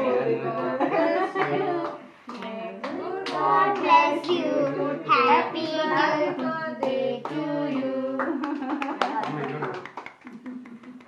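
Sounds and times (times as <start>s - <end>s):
group singing together: 0.0s - 8.8s
hand claps: 1.4s - 4.4s, 6.4s - 11.0s.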